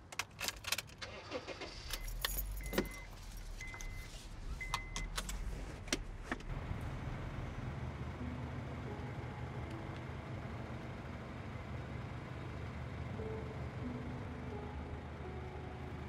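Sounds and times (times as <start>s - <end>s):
car keys jangling: 0.0s - 4.0s
car engine starting and idling: 0.0s - 16.0s.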